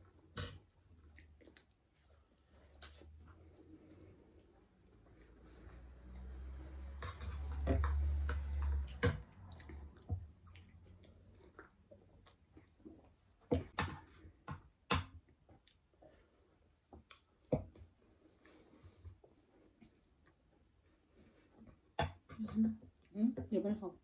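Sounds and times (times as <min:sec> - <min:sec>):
chewing: 0:00.0 - 0:06.2, 0:07.1 - 0:13.2, 0:15.5 - 0:16.3.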